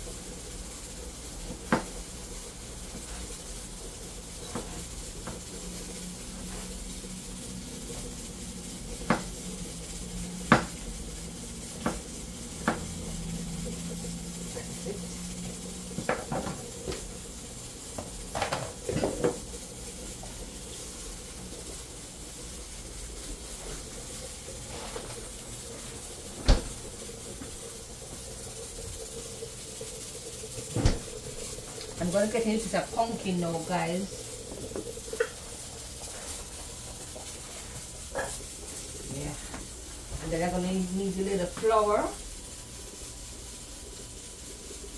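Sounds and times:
steady hiss: 0.0s - 44.9s
knife knocking on cutting board: 12.6s - 12.9s.

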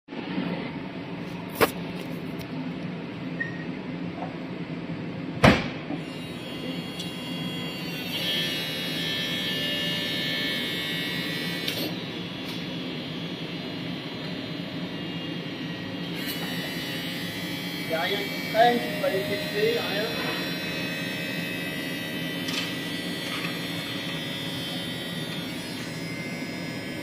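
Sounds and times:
hydraulic mechanical hum: 4.8s - 27.0s
hydraulic whine: 5.9s - 27.0s.

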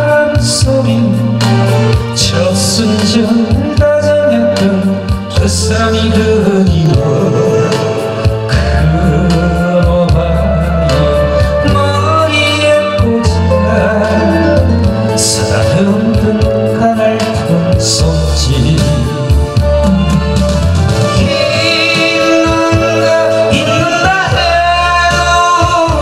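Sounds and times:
instrumental accompaniment: 0.0s - 26.0s
man singing into microphone: 0.0s - 26.0s.

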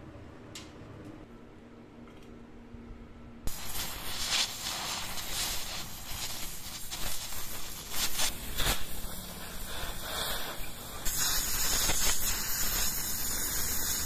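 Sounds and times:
welding arc crackling and hissing: 3.5s - 14.0s.

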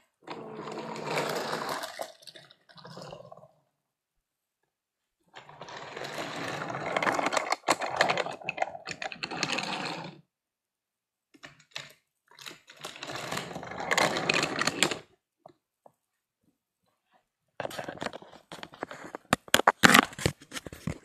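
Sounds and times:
plastic toy pieces rattling: 6.6s - 9.8s.

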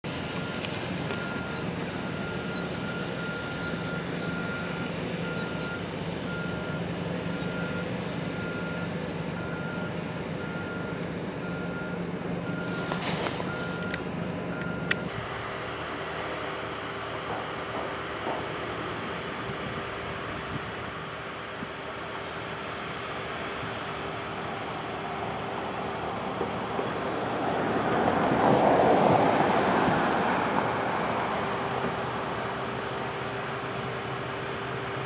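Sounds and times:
engine running: 0.0s - 35.0s
backup alarm beeping: 8.4s - 15.1s.

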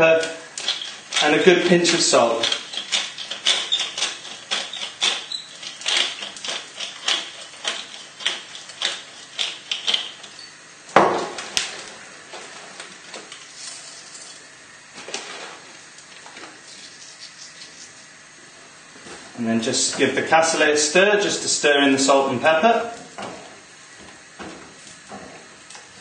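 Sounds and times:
pepper mill grinding: 0.1s - 10.5s, 13.3s - 14.5s, 16.6s - 18.0s.

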